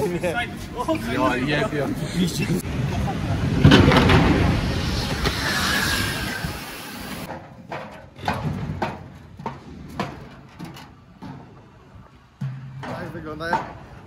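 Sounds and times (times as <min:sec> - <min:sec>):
loud rushing noise: 0:02.6 - 0:07.3.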